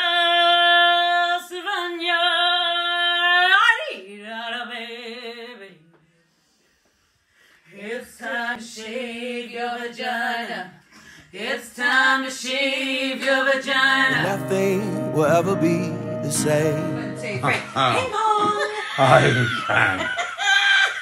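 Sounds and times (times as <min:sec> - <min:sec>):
person singing: 0:14.0 - 0:18.7.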